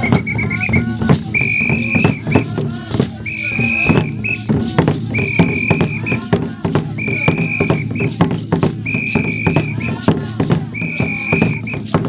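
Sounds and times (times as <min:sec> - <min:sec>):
high whistle blasts: 0:00.0 - 0:02.4, 0:05.1 - 0:06.2, 0:07.0 - 0:08.1, 0:08.8 - 0:09.9, 0:10.8 - 0:11.9
fast busy percussion: 0:00.0 - 0:12.0.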